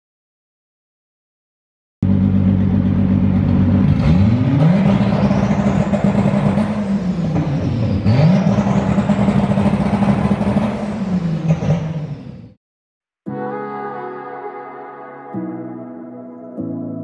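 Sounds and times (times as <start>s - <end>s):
car engine revving: 2.0s - 12.6s.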